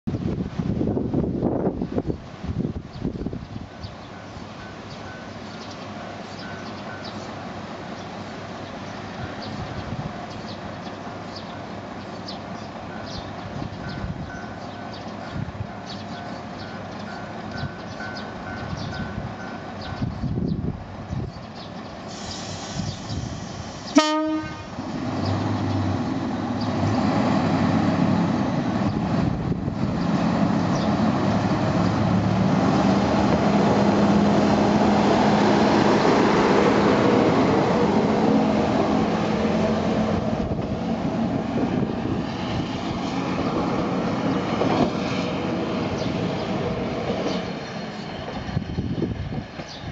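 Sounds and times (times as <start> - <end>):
diesel railcar engine passing: 0.1 - 49.9
train horn blast: 23.9 - 24.8.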